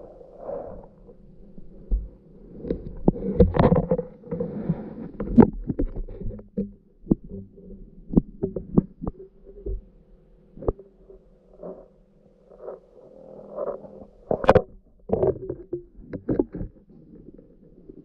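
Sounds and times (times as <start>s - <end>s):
muffled underwater thumps: 5.2s - 9.9s, 14.4s - 16.8s.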